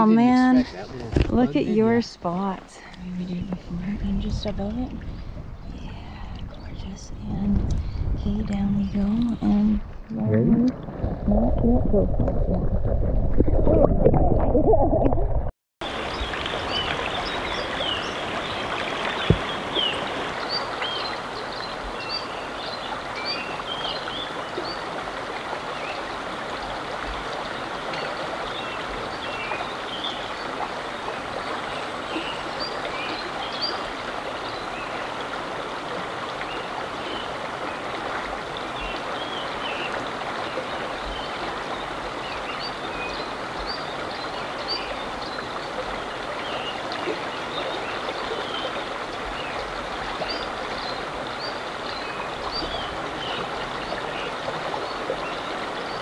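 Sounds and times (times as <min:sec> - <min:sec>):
river water rushing: 0:15.8 - 0:56.0.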